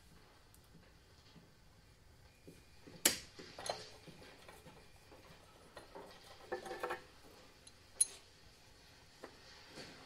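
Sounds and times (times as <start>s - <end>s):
metal hardware clinking: 6.5s - 8.3s.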